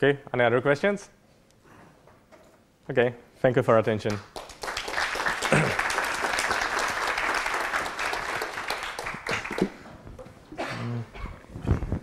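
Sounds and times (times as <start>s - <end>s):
audience applauding: 4.1s - 9.8s.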